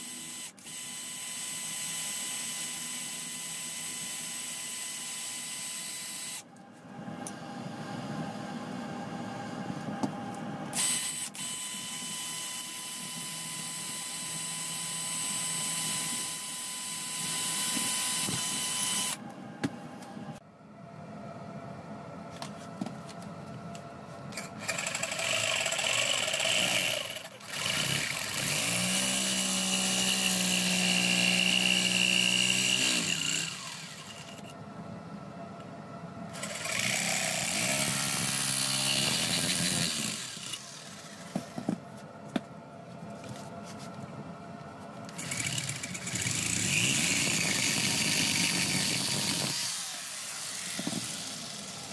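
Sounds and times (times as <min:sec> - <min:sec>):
electric jigsaw cutting: 0:00.0 - 0:06.4, 0:10.8 - 0:19.2, 0:24.4 - 0:34.5, 0:36.3 - 0:41.4, 0:45.1 - 0:51.9
drill boring through steel: 0:00.0 - 0:06.5, 0:10.8 - 0:19.2, 0:24.6 - 0:34.5, 0:36.4 - 0:41.2, 0:45.2 - 0:51.9.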